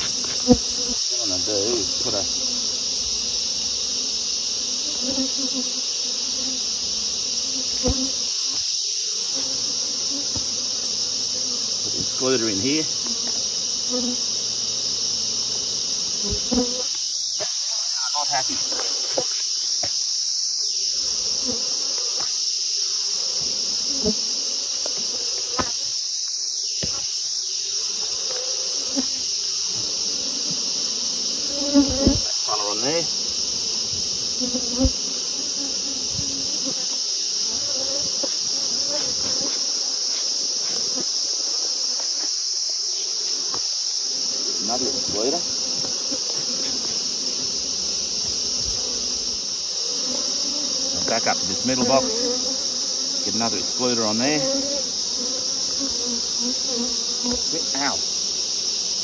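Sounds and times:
bees buzzing past: 0:00.0 - 0:59.0
high-pitched insect drone: 0:00.0 - 0:59.0
hive boxes knocking: 0:07.6 - 0:08.7, 0:10.1 - 0:10.8, 0:24.8 - 0:25.8, 0:26.8 - 0:27.2, 0:31.6 - 0:32.4, 0:45.0 - 0:49.4.

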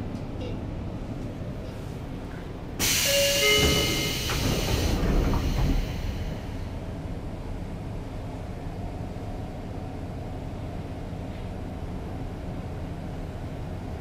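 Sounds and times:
train doors closing: 0:01.7 - 0:07.0
brief tones: 0:02.9 - 0:04.5.

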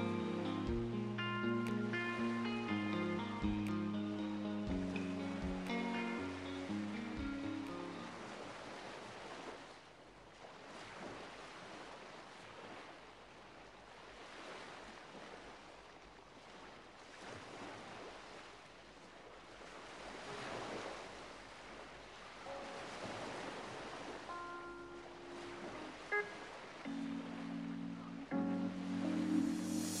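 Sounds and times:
faint rushing noise: 0:26.9 - 0:30.0.

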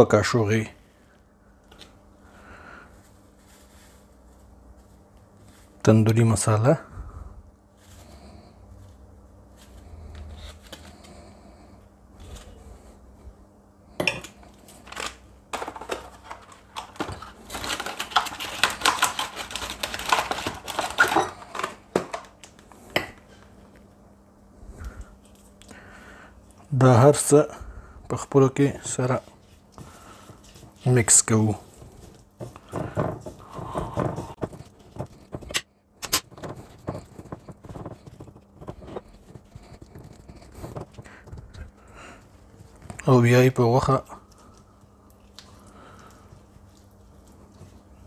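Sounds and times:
foil packet crinkling: 0:14.6 - 0:22.8
foil packet clicks: 0:14.8 - 0:22.7.

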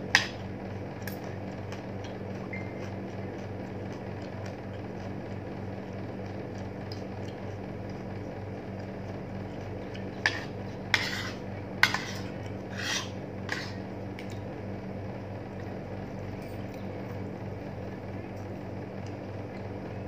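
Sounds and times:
steady low hum: 0:00.0 - 0:20.0
cutlery clinking on a plate: 0:11.0 - 0:12.3.

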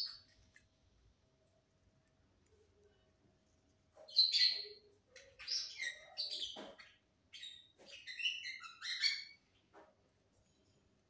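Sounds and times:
lovebird chirping: 0:00.0 - 0:00.5, 0:04.1 - 0:09.6.

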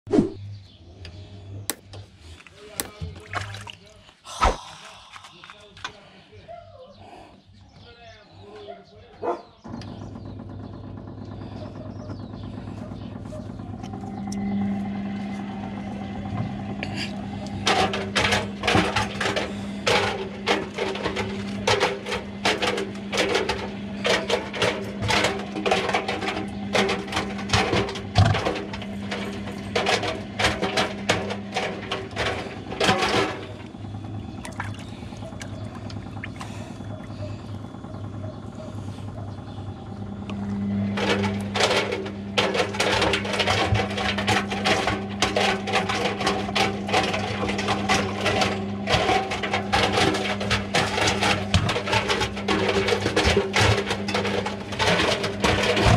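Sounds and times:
water sloshing: 0:02.3 - 0:06.1, 0:34.4 - 0:36.8
washing machine motor hum: 0:02.6 - 0:06.0, 0:09.7 - 0:55.9.

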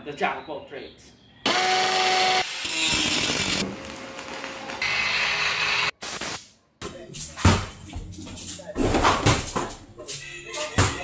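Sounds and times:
power tool motor whine: 0:01.5 - 0:05.9.

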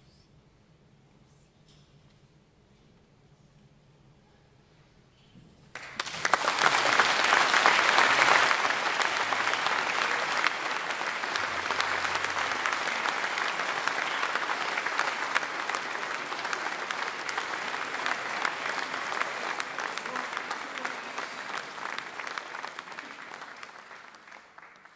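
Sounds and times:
audience applause: 0:05.8 - 0:24.9.

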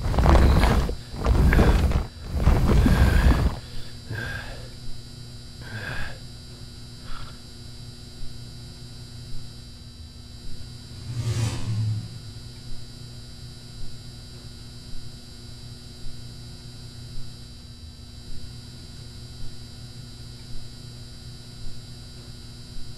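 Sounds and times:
low electrical hum: 0:00.0 - 0:22.9
loud whoosh falling in pitch: 0:10.9 - 0:12.7.

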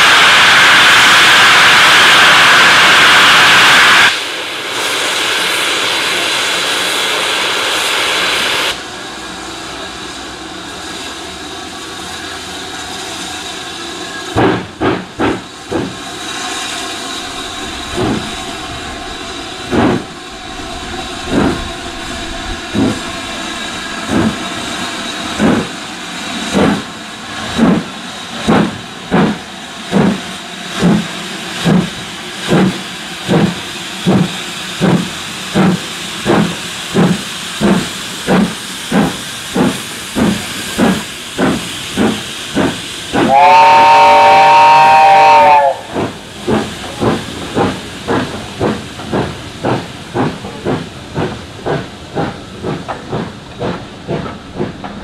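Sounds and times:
steam locomotive exhaust beats: 0:00.0 - 0:55.0
steam hissing from drain cocks: 0:30.0 - 0:54.9.

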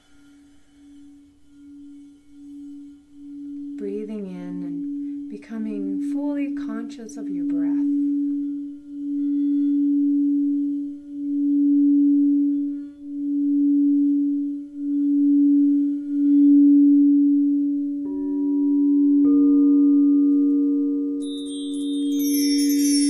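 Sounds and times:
singing bowl low tone: 0:00.0 - 0:23.0
singing bowl strikes ringing: 0:18.0 - 0:23.0.

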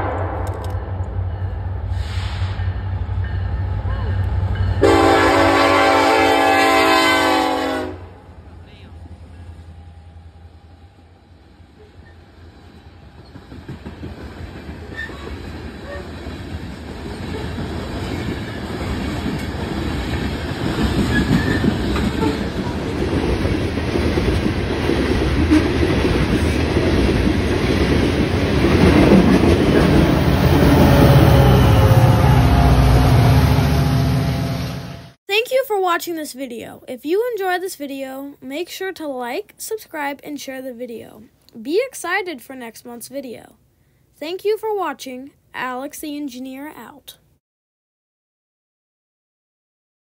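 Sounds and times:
freight train rumbling past: 0:00.0 - 0:35.2
locomotive air horn: 0:04.8 - 0:08.2, 0:30.5 - 0:35.2
wheels clattering on rails: 0:13.2 - 0:30.4.

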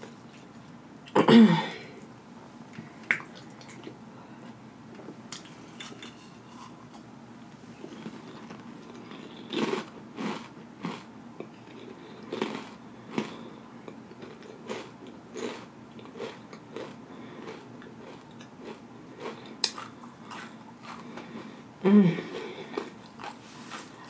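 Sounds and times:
chewing and lip smacking: 0:03.1 - 0:04.0.

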